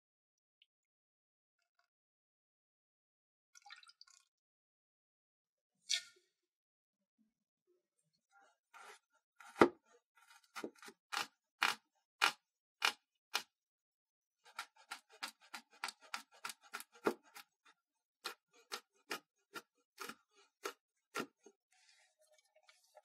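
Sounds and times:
knife chopping on wooden board: 8.8 - 13.5, 14.5 - 17.5, 18.2 - 21.5
knife scraping pieces off board: 14.5 - 17.5.

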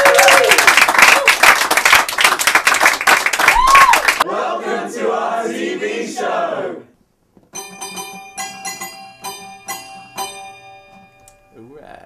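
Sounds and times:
group of voices singing: 4.2 - 6.9
keyboard tune of struck notes: 7.5 - 11.6.

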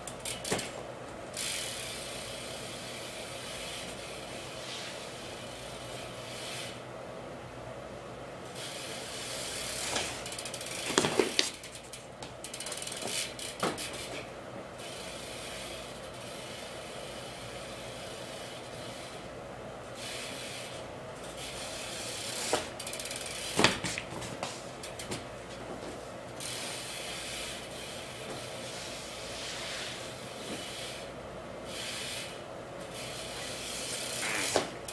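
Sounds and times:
bike tyres rolling: 0.0 - 6.9, 8.4 - 34.9.

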